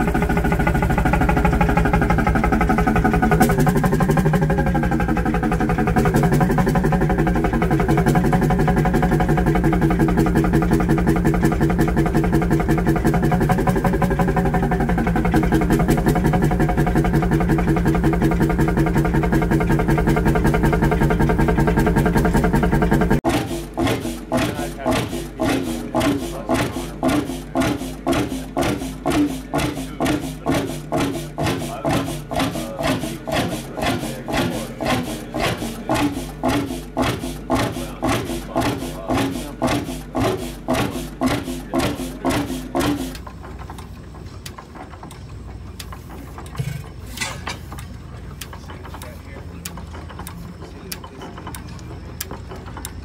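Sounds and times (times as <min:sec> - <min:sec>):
low steady running sound: 0:00.0 - 0:53.0
stationary engine beating slowly: 0:00.0 - 0:53.0
sharp clicks: 0:33.8 - 0:53.0.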